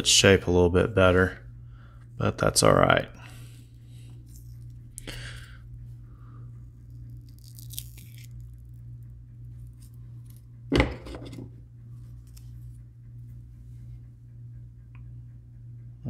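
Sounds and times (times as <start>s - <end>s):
steady low hum: 0.0s - 16.0s
silicone mould tearing rustle: 7.0s - 8.8s.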